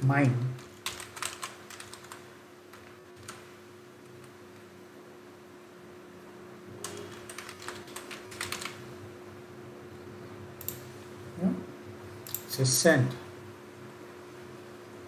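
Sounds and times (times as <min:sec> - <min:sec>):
keyboard typing: 0:00.0 - 0:04.6, 0:06.8 - 0:08.9, 0:10.6 - 0:10.9
faint steady hum: 0:00.0 - 0:15.0.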